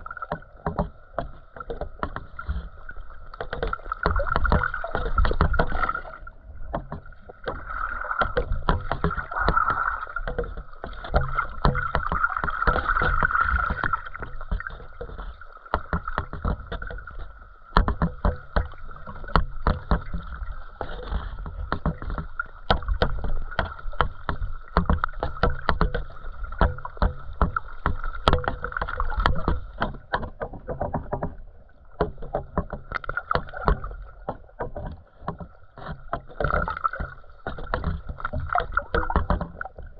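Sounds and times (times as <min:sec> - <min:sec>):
small underwater clicks and knocks: 0:00.0 - 0:39.9
underwater rumble of moving water: 0:00.0 - 0:39.9.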